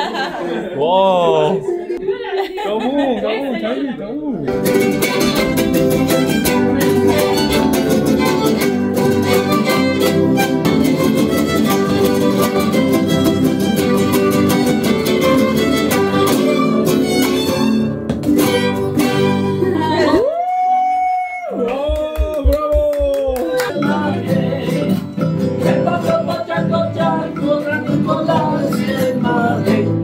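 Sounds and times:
folk music on string instruments: 4.5s - 20.2s, 23.6s - 30.0s.

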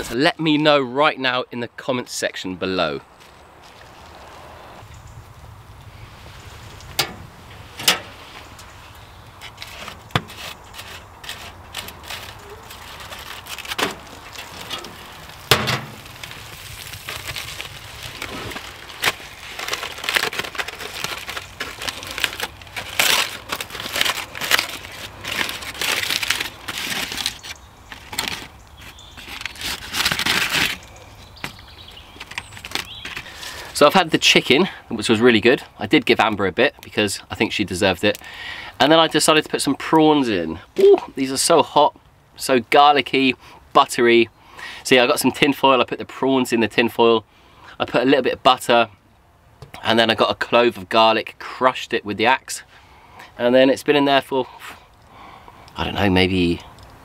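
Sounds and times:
aluminium foil crinkling: 9.4s - 31.1s, 31.9s - 33.8s.

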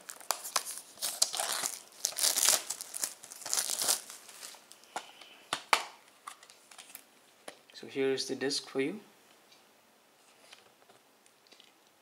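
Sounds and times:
plastic shrink wrap crinkling: 0.0s - 5.1s.

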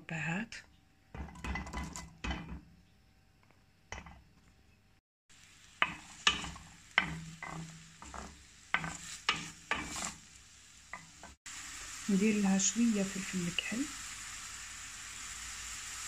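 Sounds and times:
onion sizzling in hot oil: 1.1s - 2.9s, 3.8s - 4.7s, 5.3s - 16.0s
wooden spatula scraping pan: 5.8s - 10.3s.

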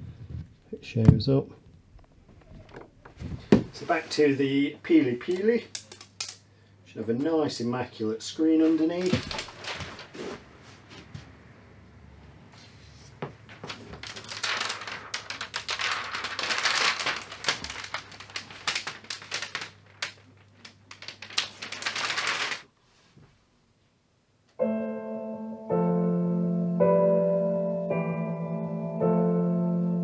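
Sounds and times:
plastic film peeling and crinkling: 5.0s - 6.4s, 8.6s - 10.4s, 13.4s - 22.7s
piano music: 24.6s - 30.0s.

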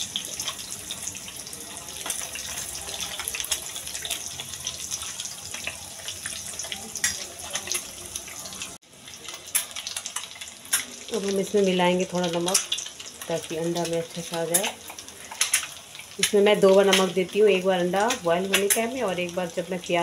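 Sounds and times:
eggs sizzling in hot oil: 0.0s - 20.0s
oil crackling and popping: 0.0s - 20.0s.

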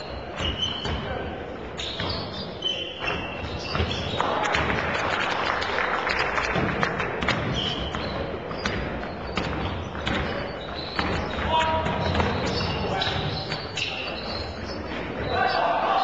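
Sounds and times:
sneakers squeaking: 0.0s - 4.8s, 7.2s - 16.0s
basketball bouncing on wooden floor: 3.4s - 4.7s, 6.6s - 13.6s.

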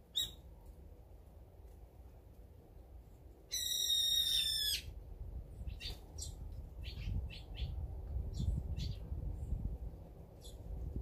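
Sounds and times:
bird shrill call: 0.1s - 0.4s, 3.5s - 4.9s
small birds high chirps: 0.1s - 0.4s, 3.5s - 4.9s, 5.6s - 9.7s, 10.4s - 10.7s.

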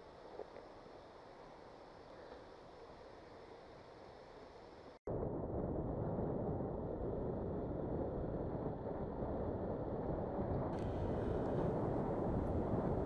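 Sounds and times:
wind buffeting microphone: 5.1s - 13.0s
motorcycle road noise: 7.6s - 13.0s.

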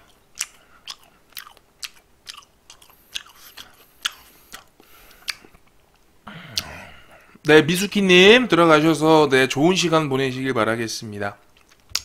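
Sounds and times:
person chewing crispy food: 0.0s - 6.8s, 11.5s - 12.0s.

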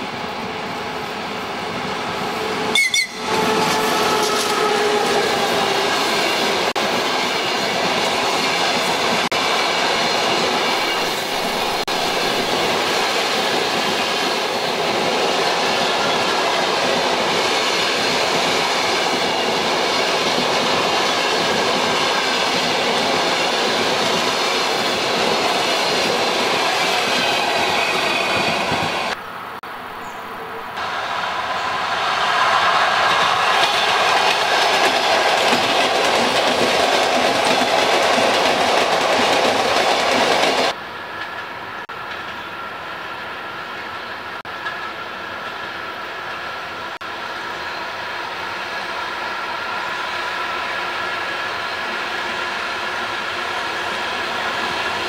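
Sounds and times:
diesel locomotive engine drone: 0.0s - 15.1s, 15.8s - 55.0s
train wheels rumbling and clacking: 0.0s - 29.2s, 30.8s - 42.4s.

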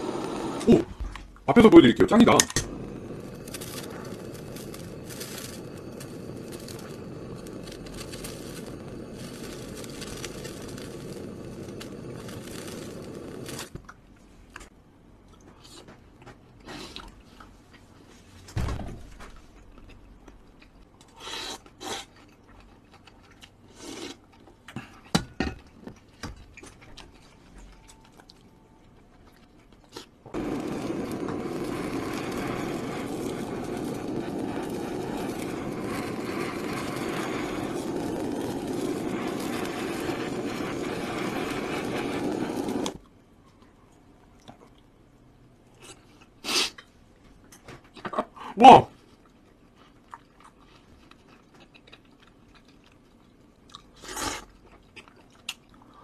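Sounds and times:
butane torch hissing: 0.0s - 13.8s, 30.3s - 43.0s.

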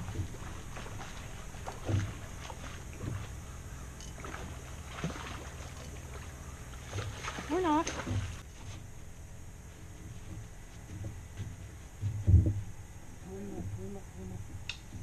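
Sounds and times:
dull knocks: 0.0s - 3.4s, 10.0s - 12.7s
low hum: 0.0s - 15.0s.

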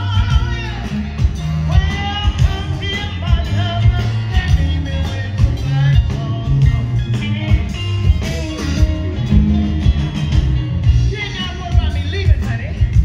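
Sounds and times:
live blues band: 0.0s - 13.0s.

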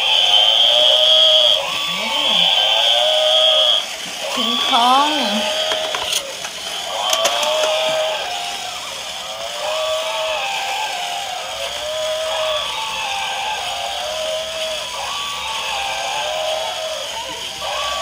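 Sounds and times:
electronic toy sound effect: 0.0s - 18.0s
small motors whining: 0.0s - 18.0s
plastic gearboxes clicking: 5.6s - 8.0s.

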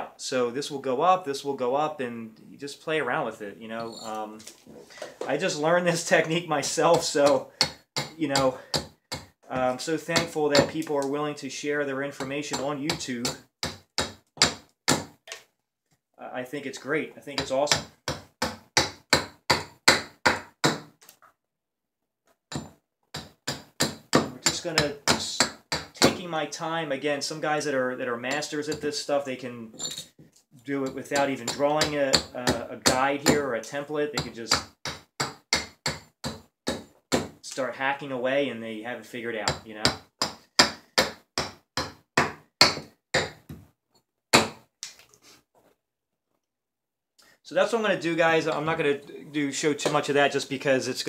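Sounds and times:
hatchet chopping wood: 6.9s - 11.1s, 12.2s - 15.2s, 17.4s - 21.0s, 22.5s - 26.2s, 34.2s - 37.4s, 39.4s - 43.6s, 44.3s - 44.7s.

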